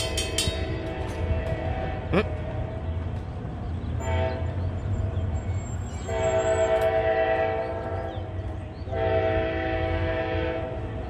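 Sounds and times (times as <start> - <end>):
train air horn blasts: 0.1 - 2.7, 4.0 - 4.6, 6.1 - 8.3, 8.9 - 11.0.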